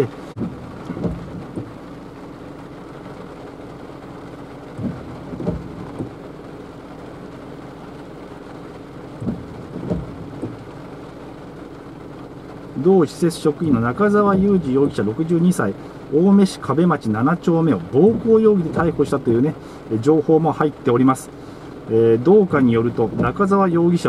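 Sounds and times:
rain on a car roof: 0.0s - 24.0s
heavy drops knocking: 0.3s - 2.3s, 4.7s - 6.2s, 9.1s - 11.0s, 14.1s - 15.1s, 17.9s - 19.2s, 22.9s - 23.6s.

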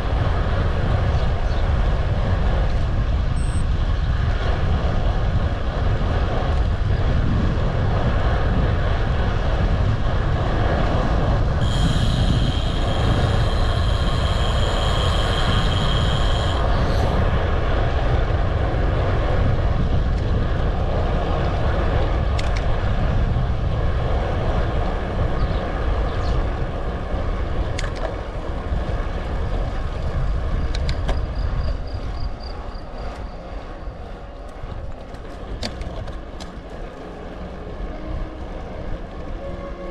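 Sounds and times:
road rumble: 0.0s - 39.9s
wind buffeting microphone: 0.0s - 39.9s
high steady squeal: 11.6s - 17.4s.

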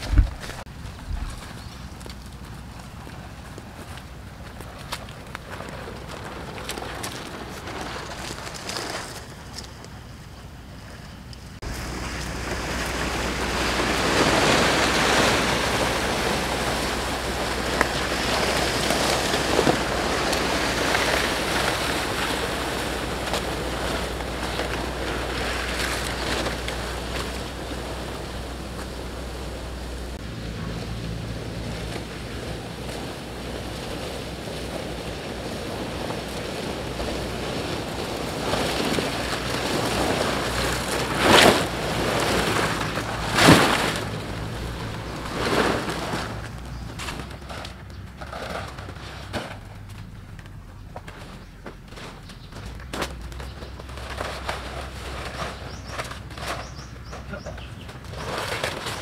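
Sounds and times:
wind rushing through forest: 0.0s - 51.6s
fronds dragged over dry leaves: 0.0s - 59.0s.

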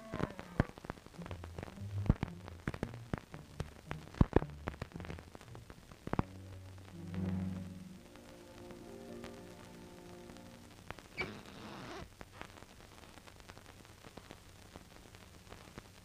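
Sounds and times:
film soundtrack crackle and pops: 0.0s - 16.0s
soft low musical notes: 1.1s - 11.1s.

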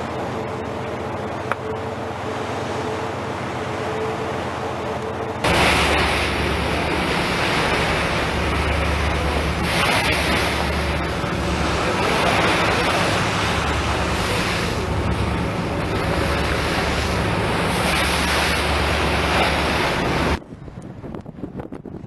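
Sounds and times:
open sea noise: 0.0s - 22.0s
steady low hum: 0.0s - 22.0s
wind buffeting microphone: 5.5s - 22.0s.

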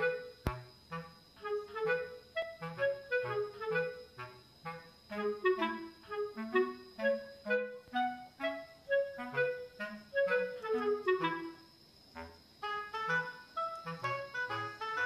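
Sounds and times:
bouncy instrumental music: 12.6s - 15.0s.

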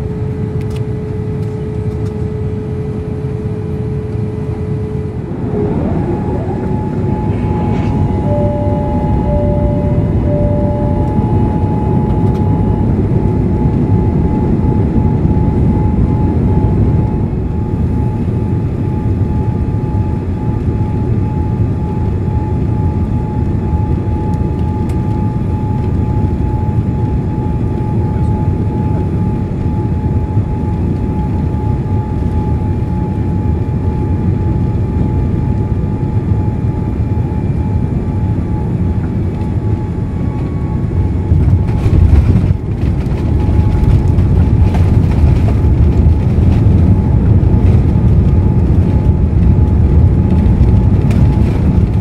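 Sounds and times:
faint constant whine: 0.0s - 52.0s
cabin low rumble: 0.3s - 17.2s, 39.0s - 52.0s.

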